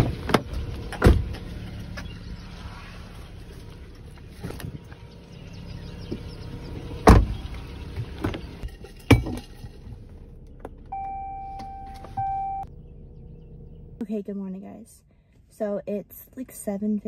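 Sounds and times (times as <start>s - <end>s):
car doors shutting: 0.0s - 2.2s, 6.0s - 8.6s, 10.7s - 12.7s
car cabin noise: 0.0s - 8.6s, 10.3s - 14.0s
car electronic chime: 10.9s - 12.7s.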